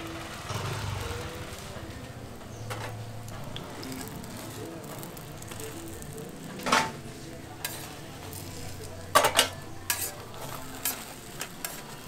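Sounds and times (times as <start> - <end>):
frying sizzle: 0.0 - 12.0
metal spatula scraping griddle: 3.6 - 12.0.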